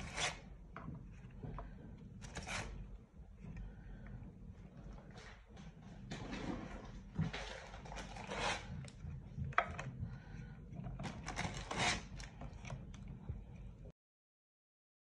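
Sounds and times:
pasta sheets scraping in metal tray: 0.0s - 0.5s, 2.2s - 2.8s, 7.4s - 8.8s, 11.2s - 12.3s.

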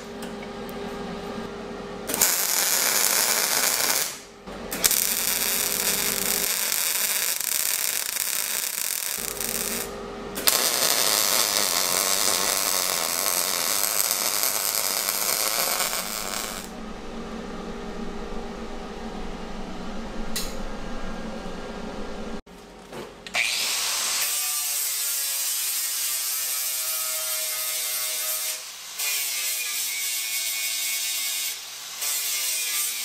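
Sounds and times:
arc welding crackling hiss: 2.1s - 4.2s, 4.8s - 16.7s, 23.9s - 33.0s.

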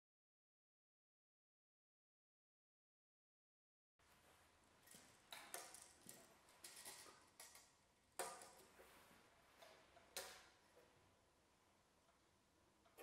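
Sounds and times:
clicks and light knocks: 4.8s - 8.8s.

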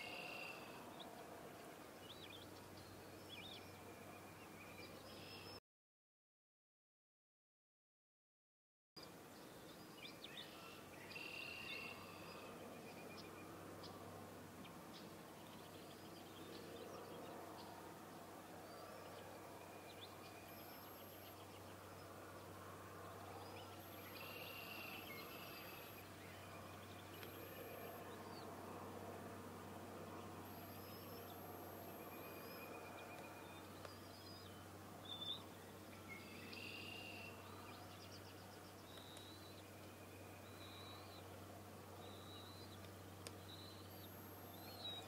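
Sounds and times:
low hum and hiss: 0.0s - 5.6s, 9.0s - 45.0s
small birds chirping: 14.6s - 28.6s, 30.0s - 45.0s
bird chirps and trills: 30.1s - 41.3s.

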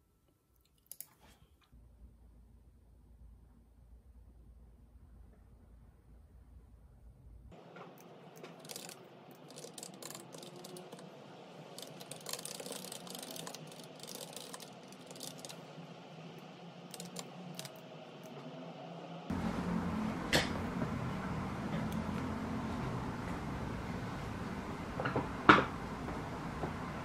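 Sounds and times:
computer keyboard typing: 8.0s - 11.1s, 11.7s - 15.6s, 16.9s - 17.8s.

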